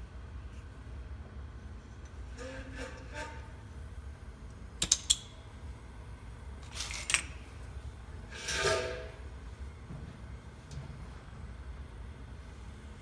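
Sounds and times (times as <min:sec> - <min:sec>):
torch igniter clicks: 0:04.8 - 0:05.4.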